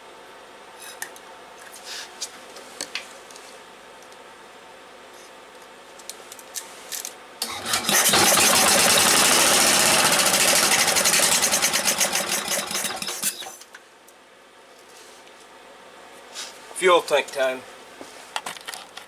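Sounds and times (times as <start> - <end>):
engine cranking and running: 7.4 - 13.6.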